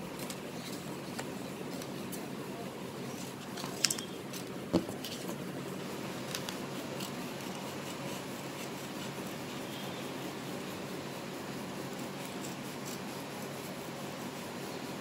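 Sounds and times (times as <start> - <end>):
scissors snipping paper: 12.0 - 13.1.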